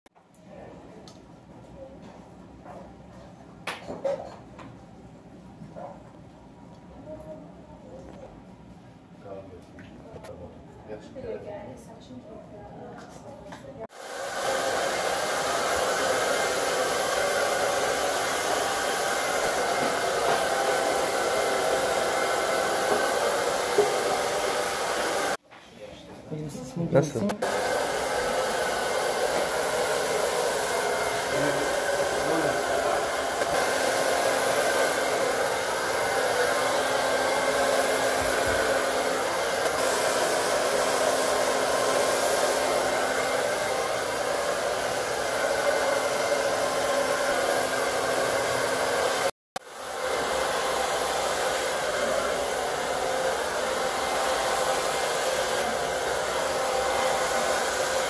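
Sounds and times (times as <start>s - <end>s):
hair dryers blowing: 13.8s - 25.4s, 27.0s - 58.0s.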